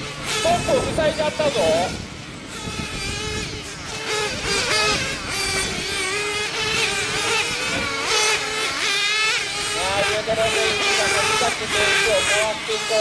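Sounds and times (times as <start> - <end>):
engine holding steady pitch: 0.0 - 13.0
small engines whining at high revs: 0.0 - 13.0.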